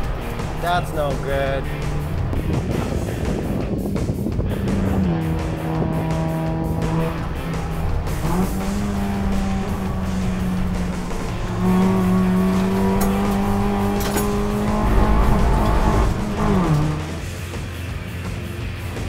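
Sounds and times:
race car engine at high revs: 4.5s - 17.9s.

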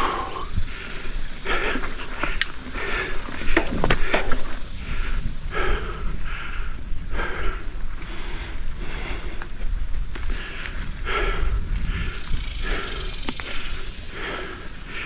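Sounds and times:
person breathing hard: 0.0s - 15.0s
bike clicks and rattles: 0.8s - 5.2s.

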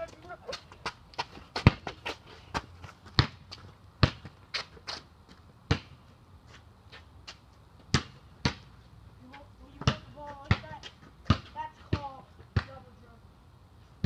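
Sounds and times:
basketball bouncing: 0.8s - 2.0s, 2.6s - 4.4s, 7.9s - 8.7s, 9.8s - 12.8s.

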